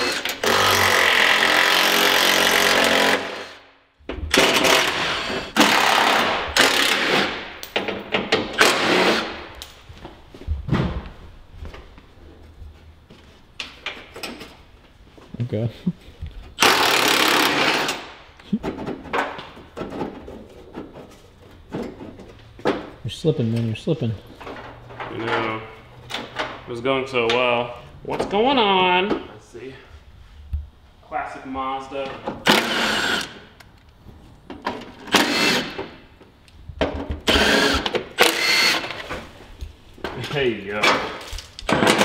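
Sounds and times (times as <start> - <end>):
cordless impact tool bursts: 0.0 - 3.6, 4.3 - 7.4, 8.6 - 9.4, 16.6 - 18.1, 32.4 - 33.4, 35.1 - 35.8, 37.2 - 39.0
power tool spinning out bolt: 16.6 - 18.1, 35.1 - 35.8, 37.3 - 39.0.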